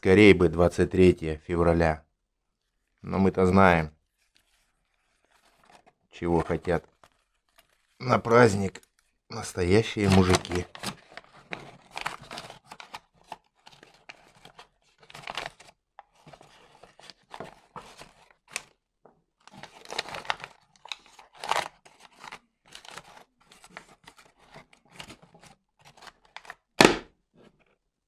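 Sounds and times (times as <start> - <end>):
wrapping paper crinkling and rustling: 2.6 - 3.1, 4.0 - 9.2, 9.8 - 18.8, 19.4 - 26.7.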